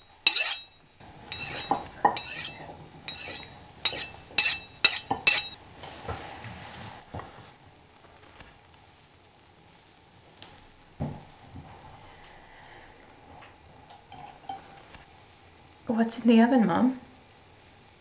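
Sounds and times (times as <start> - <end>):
cutlery scraping plate: 0.0 - 5.6, 14.1 - 14.8
knife and fork clinking on plate: 0.3 - 0.8, 1.4 - 5.6.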